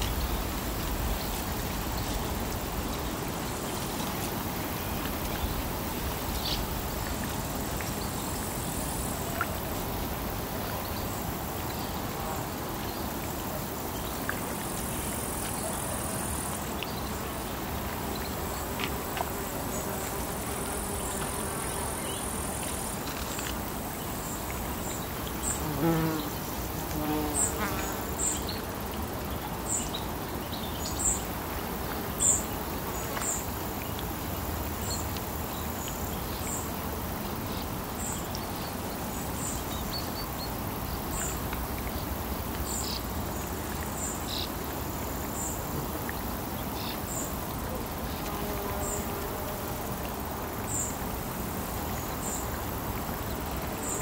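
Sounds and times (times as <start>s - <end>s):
steady outdoor hiss: 0.0s - 54.0s
buzzing insect flying: 25.6s - 28.1s.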